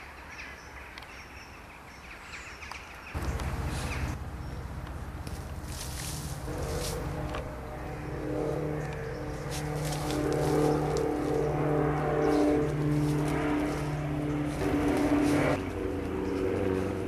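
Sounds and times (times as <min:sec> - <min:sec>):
earth scraping: 0:05.2 - 0:17.0.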